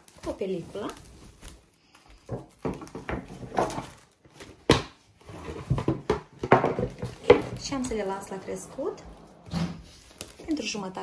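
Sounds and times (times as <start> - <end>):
cling film crinkling and squeaking: 0.0 - 4.6.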